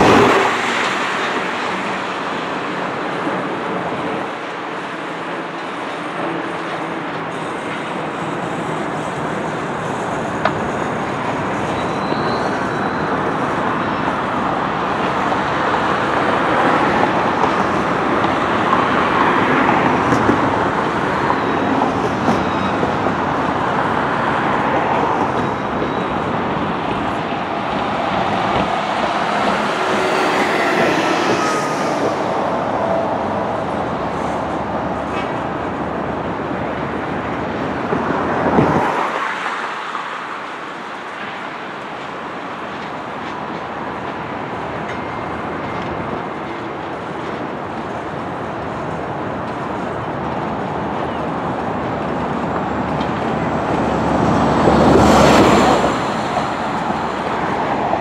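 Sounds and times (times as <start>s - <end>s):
train wheels rumbling on rail: 0.0s - 58.0s
faint squeal: 11.6s - 13.2s, 29.6s - 33.0s.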